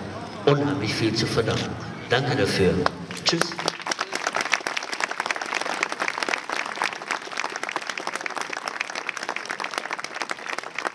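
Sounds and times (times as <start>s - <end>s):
crowd applauding: 3.1s - 10.9s.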